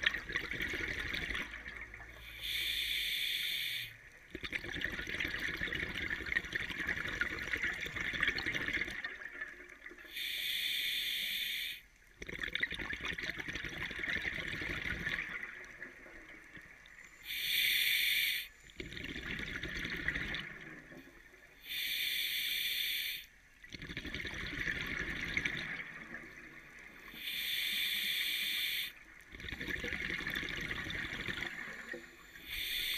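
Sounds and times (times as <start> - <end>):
bubbling exhale underwater: 0.0 - 2.3, 4.3 - 9.8, 12.2 - 15.8, 18.8 - 20.9, 23.7 - 26.3, 29.3 - 32.9
regulator hissing inhale: 2.2 - 4.0, 10.1 - 11.9, 17.2 - 18.7, 21.6 - 23.3, 27.1 - 29.0, 32.2 - 32.9.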